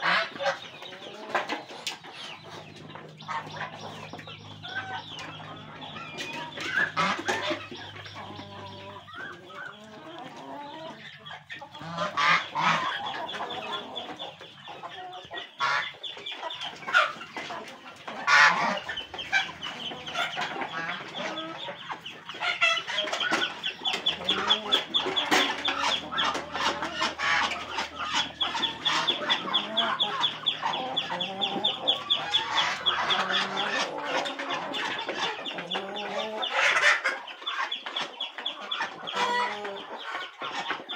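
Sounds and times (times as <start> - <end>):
chickens clucking: 0.0 - 40.9.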